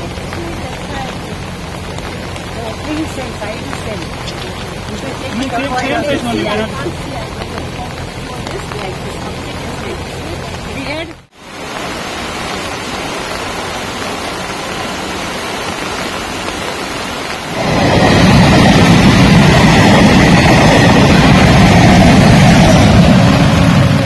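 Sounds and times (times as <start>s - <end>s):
train wheels rumbling on rails: 0.0s - 11.3s, 17.3s - 24.0s
steady rain hissing: 0.0s - 24.0s.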